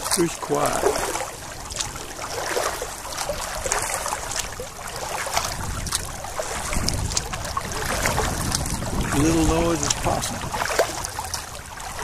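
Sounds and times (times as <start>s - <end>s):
kayak paddle splashing: 0.0s - 12.0s.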